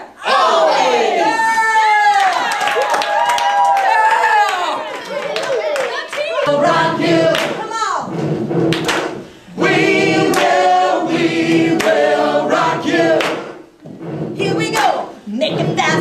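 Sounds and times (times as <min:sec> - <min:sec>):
group singing in unison: 0:06.5 - 0:16.0.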